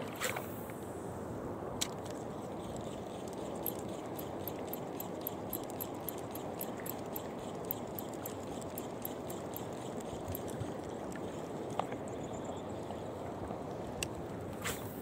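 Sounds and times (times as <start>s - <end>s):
wind: 0.0s - 15.0s
fishing reel ticking: 2.1s - 12.9s.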